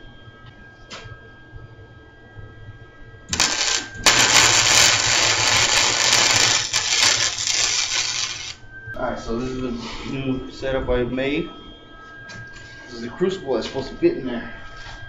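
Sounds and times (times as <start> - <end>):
arc welding crackle: 3.3 - 8.6.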